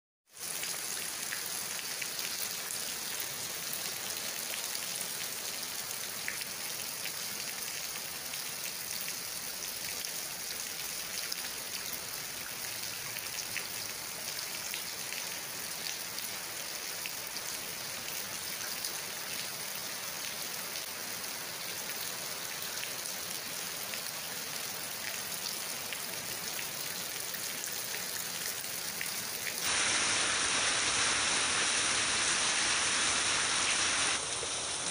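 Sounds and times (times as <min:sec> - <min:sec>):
steady rain hiss: 0:00.3 - 0:34.9.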